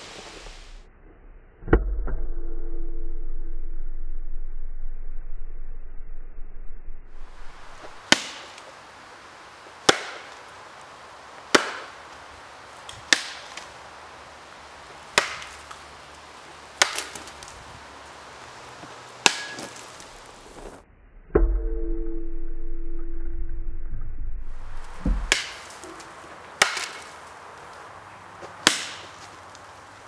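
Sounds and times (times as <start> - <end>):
low rumble and hum: 0.4 - 8.0, 20.6 - 25.4
baseball bat whacking objects: 7.1 - 8.6, 9.9 - 10.3, 11.5 - 12.0, 13.1 - 13.6, 15.1 - 15.7, 16.8 - 17.5, 19.2 - 20.0, 24.5 - 27.1, 28.6 - 29.2.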